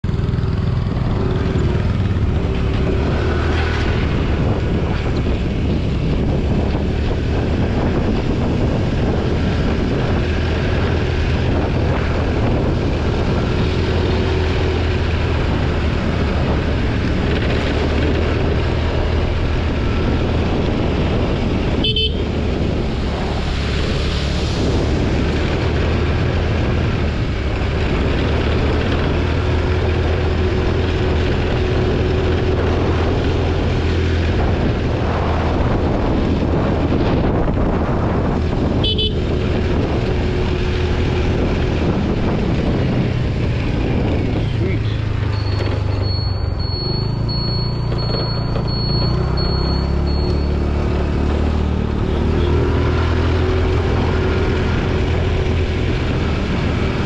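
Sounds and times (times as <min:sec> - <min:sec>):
scooter engine running: 0:00.0 - 0:35.0, 0:38.0 - 0:57.0
road noise: 0:00.0 - 0:57.0
short horn beep: 0:21.8 - 0:22.3, 0:45.3 - 0:50.6.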